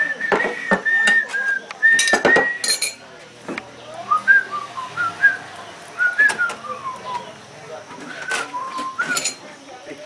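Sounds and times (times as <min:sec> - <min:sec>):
person whistling a tune: 0:00.0 - 0:02.8, 0:08.1 - 0:09.4
tableware clinking: 0:00.3 - 0:03.1, 0:08.1 - 0:09.6.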